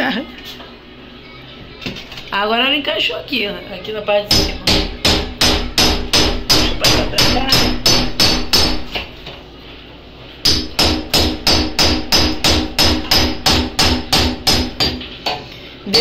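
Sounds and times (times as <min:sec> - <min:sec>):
hammer blows on a door: 0:04.3 - 0:08.9, 0:10.5 - 0:15.0.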